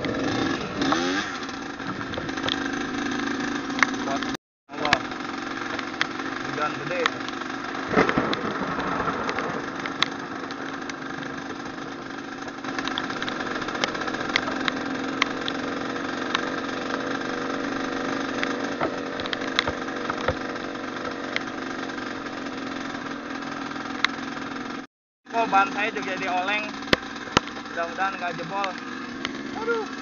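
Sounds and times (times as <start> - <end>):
motorcycle engine running: 0.0 - 30.0
sharp clicks: 2.1 - 2.7, 7.0 - 11.0, 12.8 - 15.6, 18.4 - 20.4.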